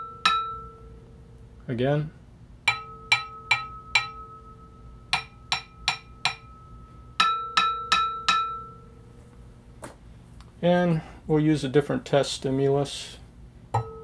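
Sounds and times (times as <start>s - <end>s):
stick tapping metal platter: 0.0s - 0.8s, 2.7s - 8.8s, 13.7s - 14.0s
sustained metallic ringing: 0.0s - 1.4s, 2.7s - 9.2s, 13.7s - 14.0s.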